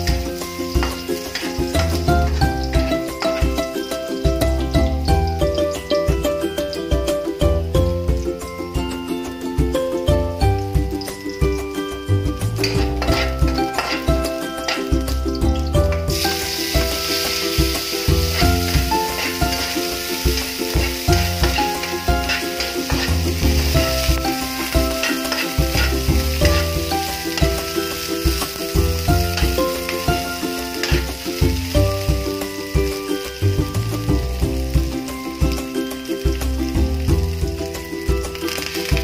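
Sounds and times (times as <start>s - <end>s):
food sizzling in oil: 0.0s - 39.0s
metal spatula scraping pan: 12.6s - 14.9s, 17.1s - 28.6s
music with pulsing bass: 15.0s - 25.0s.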